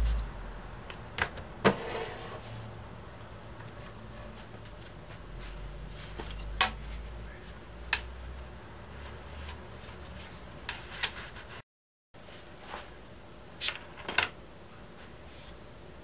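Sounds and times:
low hum: 0:00.0 - 0:01.6.

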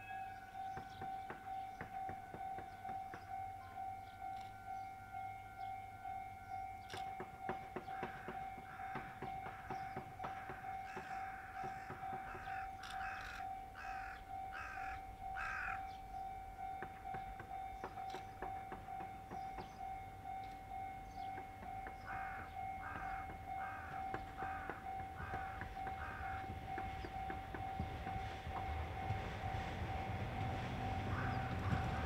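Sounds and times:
crow cawing: 0:07.9 - 0:15.9, 0:22.0 - 0:26.5, 0:31.1 - 0:31.9.

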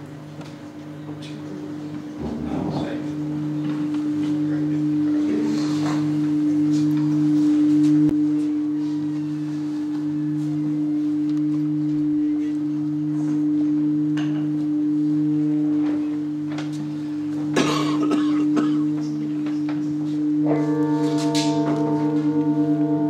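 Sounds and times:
hand-held bowl wavering tone: 0:00.0 - 0:17.6, 0:18.4 - 0:23.0
singing bowl low tone: 0:01.0 - 0:17.6, 0:18.4 - 0:23.0
noisy knock: 0:02.2 - 0:03.9.

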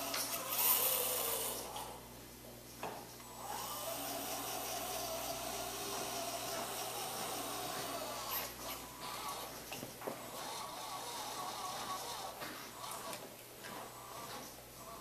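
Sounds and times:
small electric motors whirring: 0:00.0 - 0:02.0, 0:03.2 - 0:13.2.

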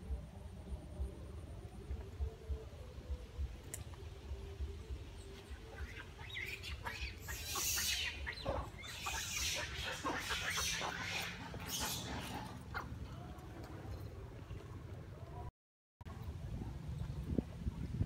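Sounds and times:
monkeys squeaking and screeching: 0:05.7 - 0:13.0.

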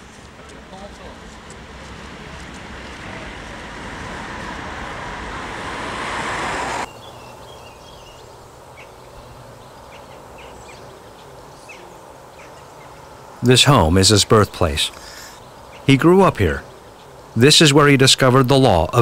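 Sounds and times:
rising whoosh: 0:02.2 - 0:07.0.

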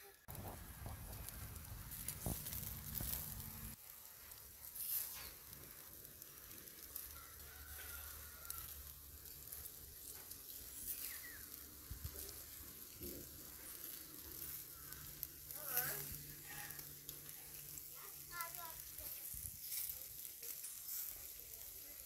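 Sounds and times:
meat sizzling over charcoal: 0:00.0 - 0:22.0
small crackles: 0:00.0 - 0:22.0
low rumble: 0:00.3 - 0:03.8.

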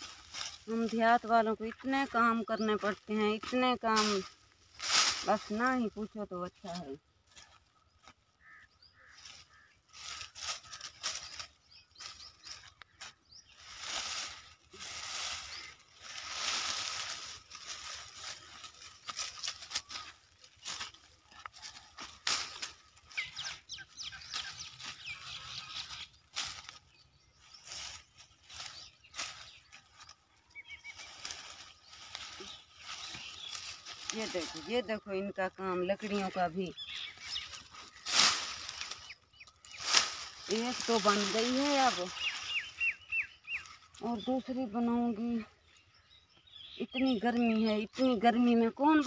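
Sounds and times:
bundle dragged over stubble: 0:00.0 - 0:08.2, 0:09.0 - 0:45.1
branches and twigs rustling: 0:00.0 - 0:49.0.

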